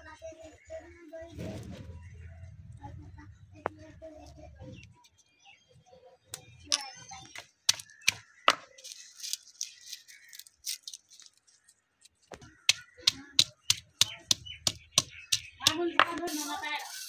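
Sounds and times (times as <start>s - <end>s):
onion skins crackling and rustling: 7.8s - 14.1s.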